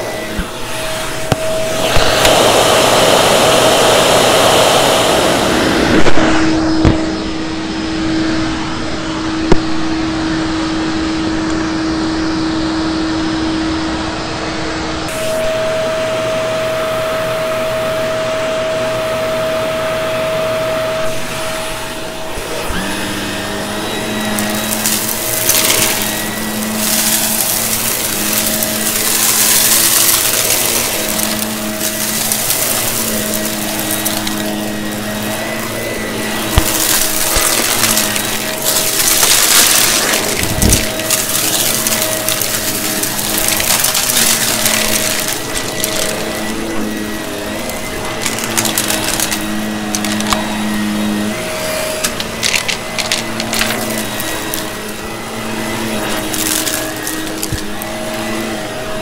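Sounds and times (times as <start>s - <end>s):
vacuum cleaner motor whine: 0.0s - 59.0s.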